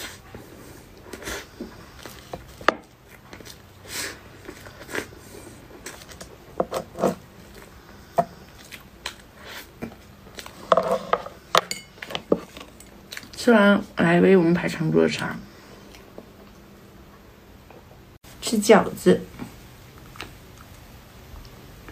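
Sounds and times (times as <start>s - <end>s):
wet chewing mouth sounds: 7.4s - 10.6s.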